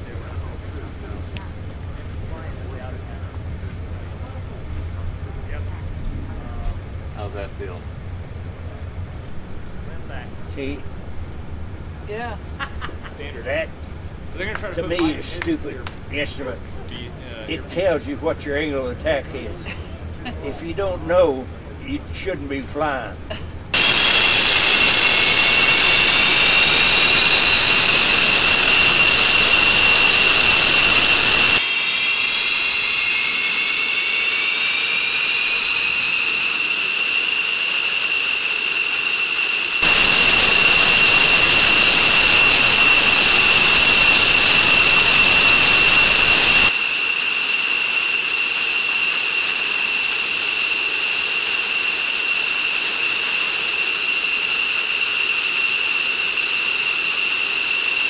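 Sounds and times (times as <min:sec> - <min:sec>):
jet engine whine: 0:00.0 - 0:12.0, 0:13.2 - 0:58.0
loud rushing hiss: 0:23.7 - 0:58.0.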